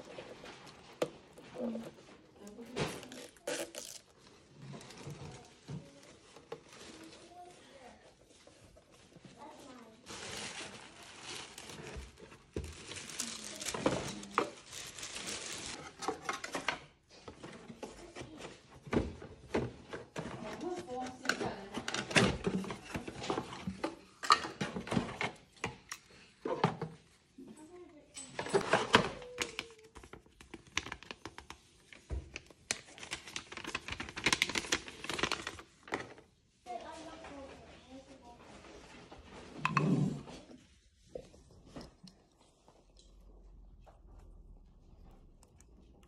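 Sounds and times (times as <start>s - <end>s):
packing wrap crinkling: 0.0s - 16.0s, 29.1s - 36.1s
paper leaflet rustling: 8.2s - 15.8s.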